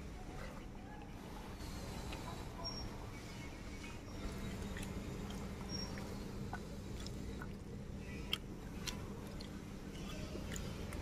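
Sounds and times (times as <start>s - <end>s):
low steady hum: 0.0s - 11.0s
fingers squishing food: 4.2s - 11.0s.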